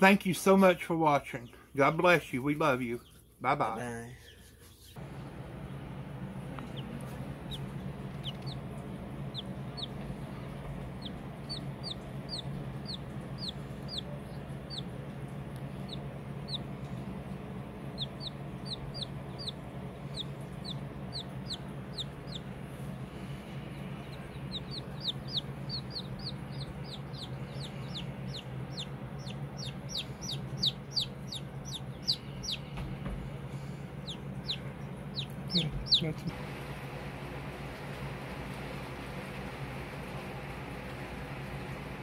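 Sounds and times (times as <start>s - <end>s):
chick peeping: 6.4s - 22.6s, 23.4s - 33.0s, 34.0s - 36.3s.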